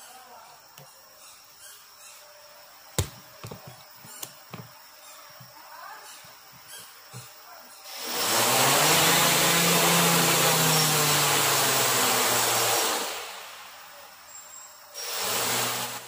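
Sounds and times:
quadcopter motors spinning: 0:07.9 - 0:16.0.

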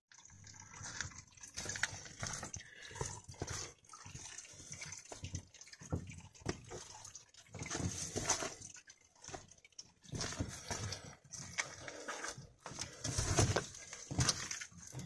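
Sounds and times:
boot footsteps on stony trail: 0:12.6 - 0:15.0.

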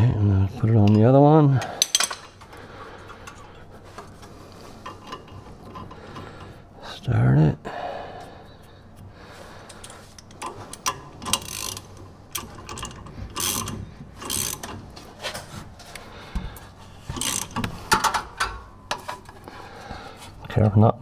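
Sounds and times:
ratchet wrench clicking: 0:09.8 - 0:14.8, 0:17.1 - 0:18.2.

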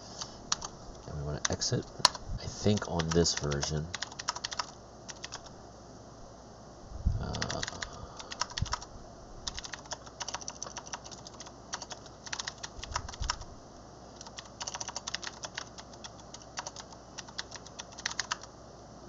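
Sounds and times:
computer keyboard typing: 0:00.5 - 0:00.7, 0:01.4 - 0:05.5, 0:07.2 - 0:13.4, 0:14.2 - 0:18.5.

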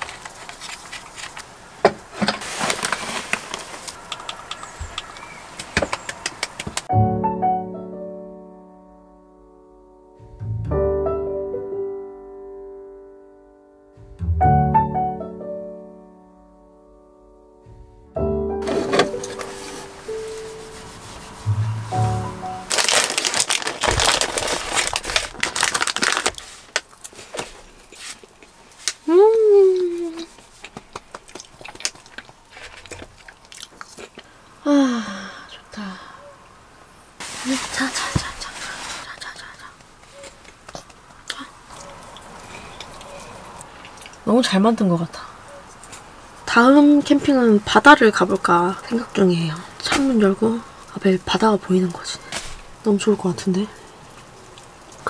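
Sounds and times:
plastic snack packet crinkling: 0:22.7 - 0:29.0, 0:30.6 - 0:34.2.

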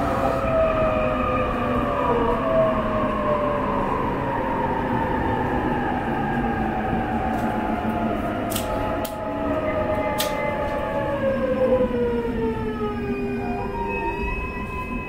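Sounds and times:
train running gear rumble: 0:05.8 - 0:15.0.

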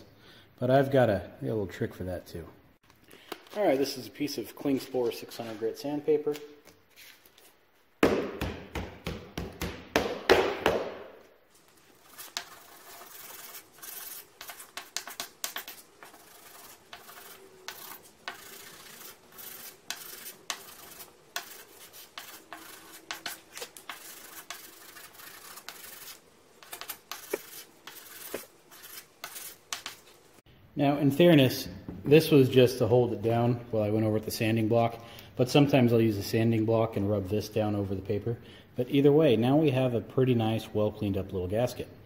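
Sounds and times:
sandpaper rubbing strokes: 0:11.5 - 0:30.4.

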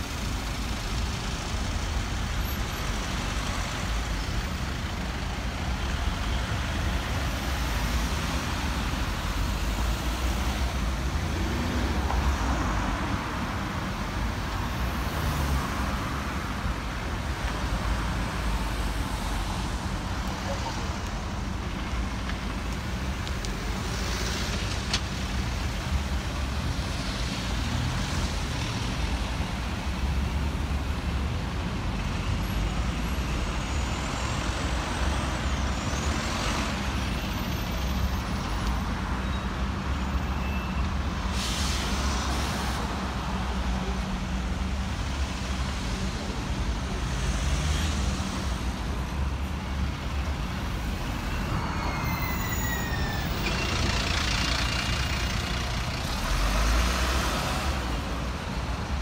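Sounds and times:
bus engine rumble: 0:00.0 - 0:59.0
air brakes hissing: 0:41.2 - 0:42.7.

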